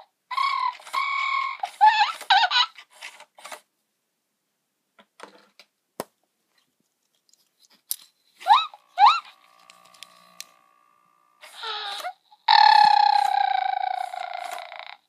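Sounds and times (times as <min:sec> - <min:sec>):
toy squeaky chirps: 0:00.3 - 0:02.8, 0:08.4 - 0:09.4, 0:11.4 - 0:15.0.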